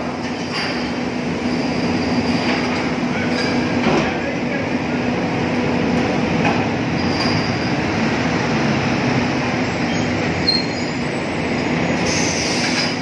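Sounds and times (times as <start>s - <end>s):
diesel engine running: 0.9s - 12.9s
brief high squeals: 9.8s - 11.1s.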